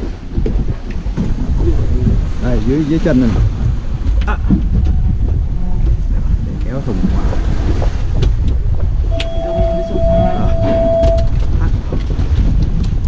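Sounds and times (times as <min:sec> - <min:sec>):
boat engine rumble: 0:00.0 - 0:13.0
wind buffeting microphone: 0:00.0 - 0:13.0
steady high tone: 0:09.1 - 0:11.3.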